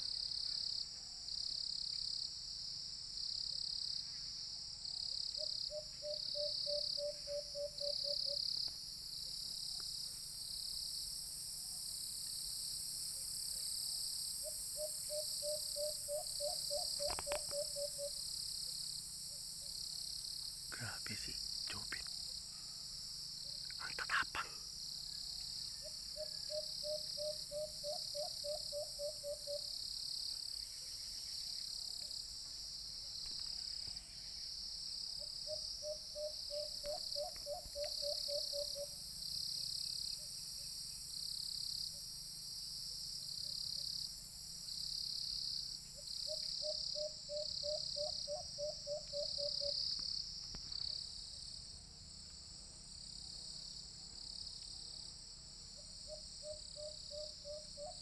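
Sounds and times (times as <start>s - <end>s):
dove hooting: 5.4s - 8.4s, 14.4s - 18.2s, 26.2s - 29.7s, 35.4s - 39.0s
insects shrilling: 10.8s - 30.0s.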